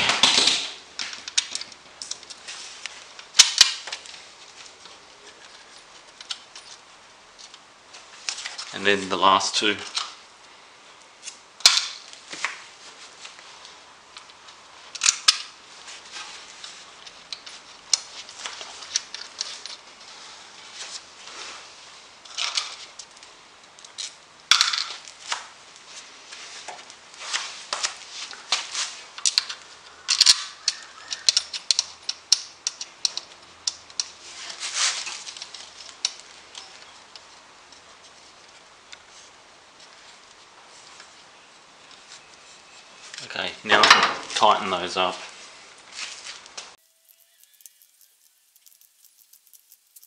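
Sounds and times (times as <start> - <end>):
metallic clicks and scrapes of bolts: 29.2 - 34.2, 47.0 - 50.0.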